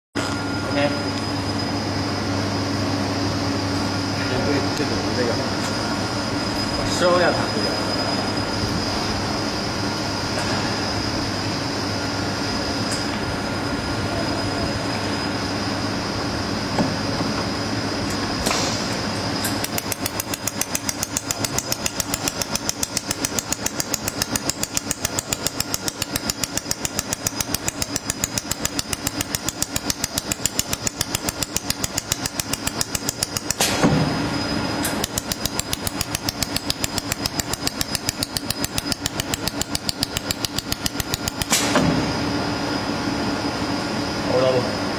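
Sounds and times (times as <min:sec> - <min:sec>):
steady machine hum: 0:00.2 - 0:44.9
laser welder snapping ticks: 0:19.4 - 0:33.8, 0:34.8 - 0:41.7.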